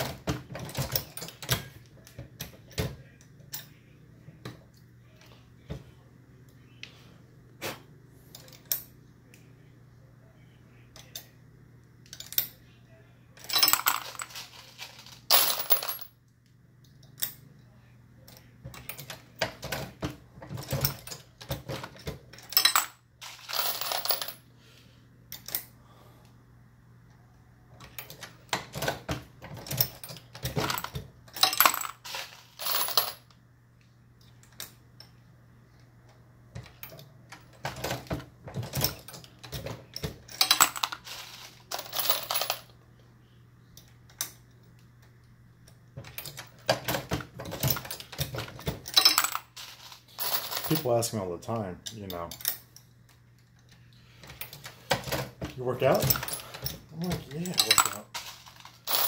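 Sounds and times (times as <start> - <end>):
brass cases clinking and rattling: 13.4 - 16.1, 18.7 - 24.4, 27.9 - 33.2, 36.6 - 42.7, 46.0 - 51.0, 54.2 - 59.0.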